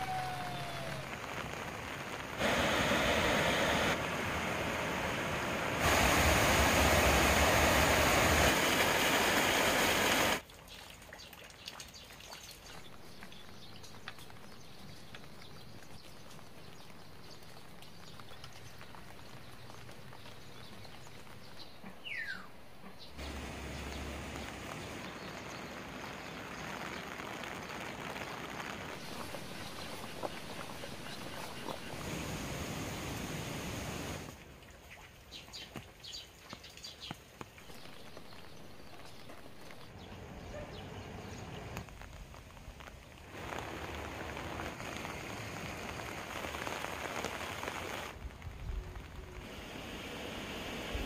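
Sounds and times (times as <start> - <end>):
steady rain: 0.0 - 51.0
water drips: 10.4 - 32.2, 34.3 - 40.0
bird chirp: 12.0 - 25.8.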